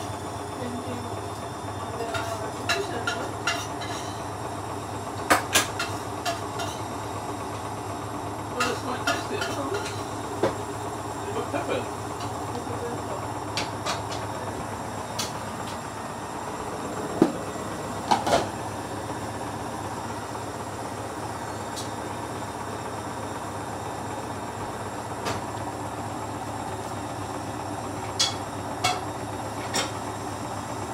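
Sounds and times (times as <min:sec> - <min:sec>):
washing machine hum: 0:00.0 - 0:30.9
washing machine drum clunks: 0:08.5 - 0:10.7, 0:13.4 - 0:14.5, 0:17.1 - 0:18.7, 0:25.1 - 0:25.7.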